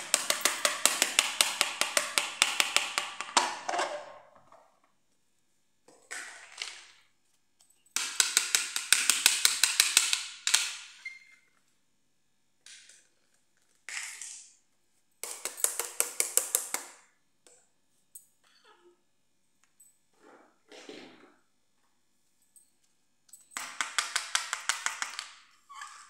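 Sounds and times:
plastic toys clattering on tile floor: 5.9 - 7.1, 23.4 - 26.0.

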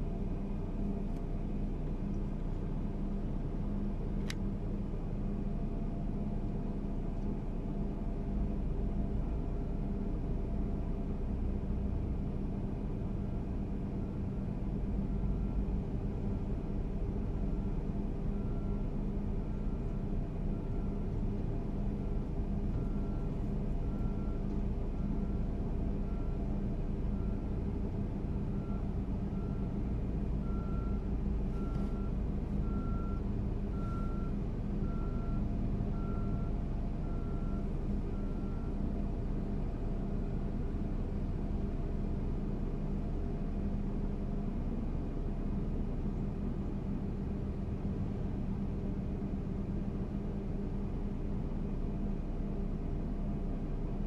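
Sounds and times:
diesel engines rumbling: 0.0 - 54.0
reversing alarm beeping: 30.4 - 38.8.

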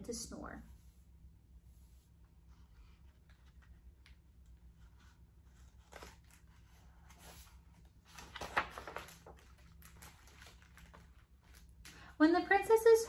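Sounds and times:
book pages rustling and turning: 1.8 - 12.0.

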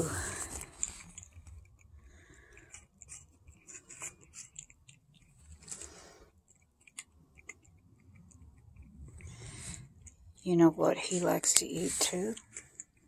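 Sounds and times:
cat chewing and crunching: 0.0 - 13.0.

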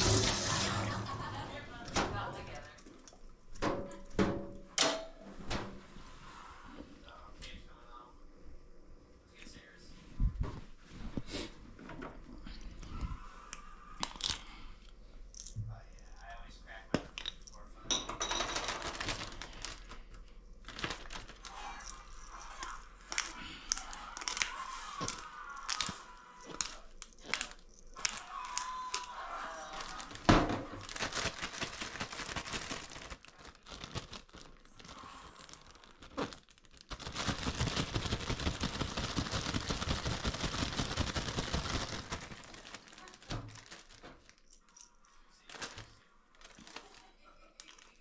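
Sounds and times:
plastic packaging crumpling: 18.4 - 48.0.

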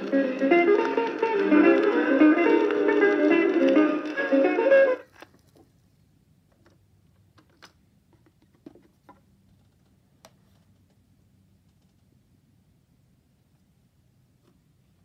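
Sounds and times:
guitar music from small speaker: 0.0 - 5.0
faint clicks and light knocks: 6.5 - 11.0, 11.6 - 12.2.

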